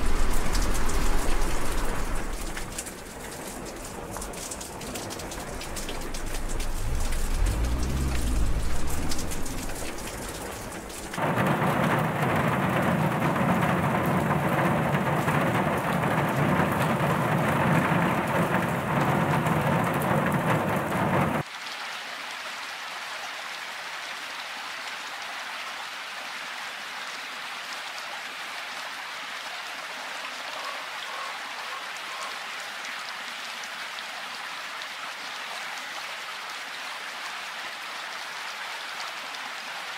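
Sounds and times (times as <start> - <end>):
deep rumble: 0.0 - 2.9, 4.8 - 21.4
rain pattering: 0.0 - 39.9.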